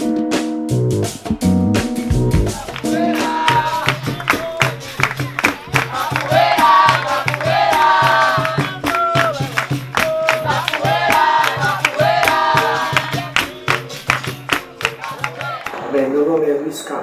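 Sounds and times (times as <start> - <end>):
sharp percussive strikes: 0.0 - 15.8
pandeiro: 1.0 - 16.2
voices singing together: 2.5 - 14.2, 14.8 - 15.9.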